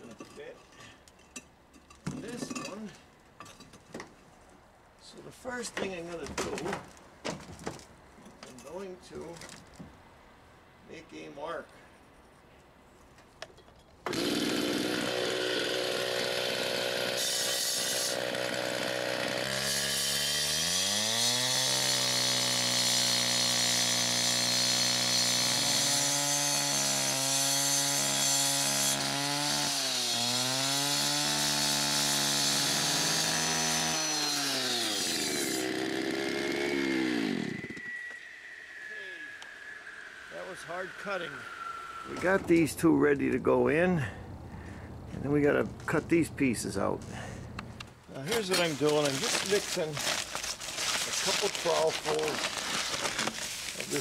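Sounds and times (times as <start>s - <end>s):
saw grinding through tile block: 14.1s - 37.8s
cut-off saw engine: 14.1s - 42.7s.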